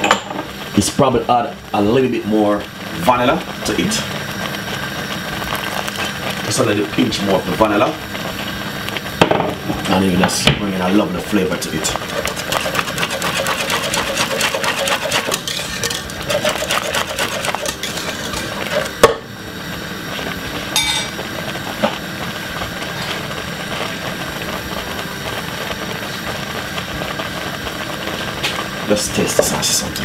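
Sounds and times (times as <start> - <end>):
steady noise: 0.6 - 30.0
whisk rattling against pot: 11.6 - 19.2
whisk knocking on pot: 11.8 - 19.2.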